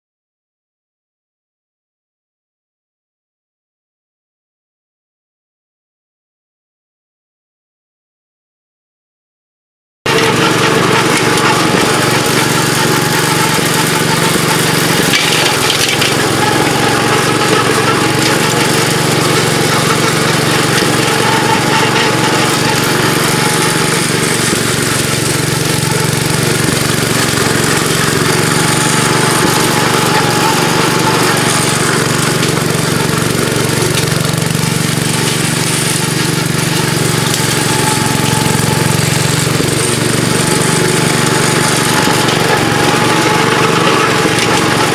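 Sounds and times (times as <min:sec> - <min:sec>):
mower cutting through brush: 0:10.1 - 0:44.9
tractor engine running under load: 0:10.1 - 0:44.9.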